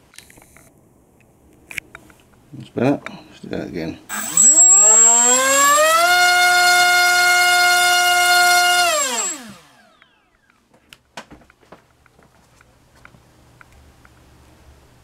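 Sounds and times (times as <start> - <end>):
drone motor whine: 4.1 - 10.4.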